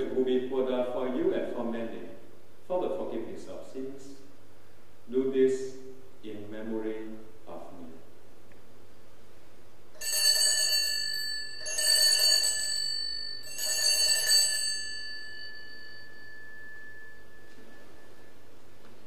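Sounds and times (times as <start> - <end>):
altar bells jangling: 10.0 - 18.6.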